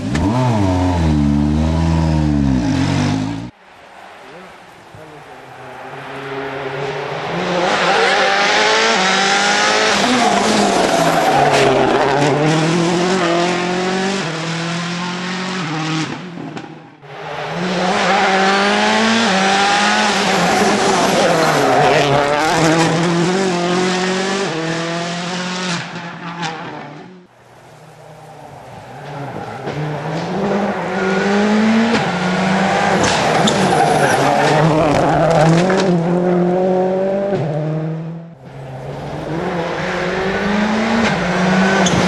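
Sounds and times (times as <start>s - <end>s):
rally car engines at full throttle: 0.0s - 42.0s.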